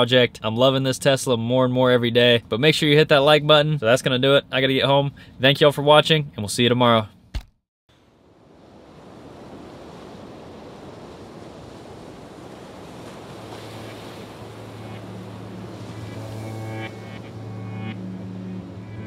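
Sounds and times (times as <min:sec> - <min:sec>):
ambient music: 0:13.8 - 0:19.0.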